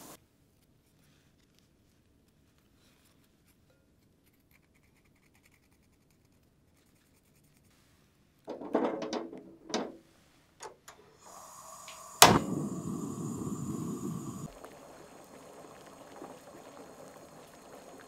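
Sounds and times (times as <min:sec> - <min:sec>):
chestnuts splashing in pot of water: 0:11.3 - 0:18.0
sharp clicks: 0:11.8 - 0:14.5
steady low rushing: 0:12.2 - 0:14.6.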